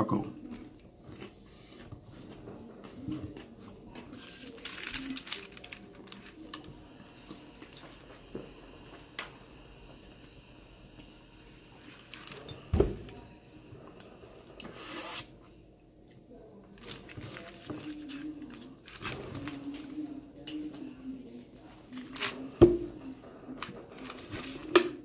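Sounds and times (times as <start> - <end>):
wet chewing: 0.4 - 8.0
sipping from plastic bottle: 14.6 - 15.3.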